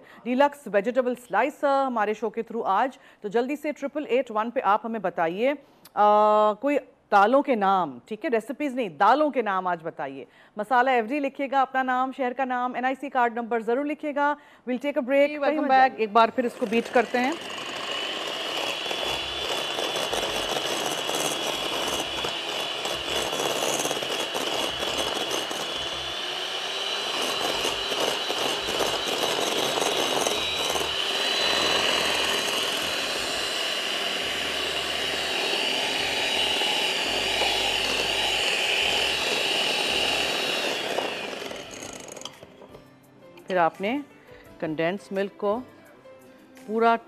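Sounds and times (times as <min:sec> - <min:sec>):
electric hand mixer whining: 0:16.4 - 0:42.5.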